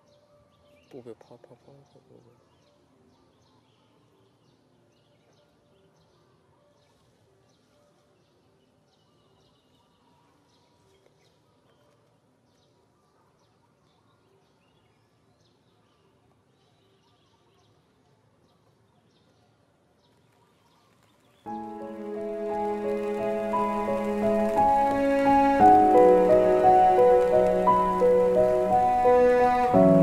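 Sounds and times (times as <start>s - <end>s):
faint outdoor ambience: 0.0s - 30.0s
background music: 21.5s - 30.0s.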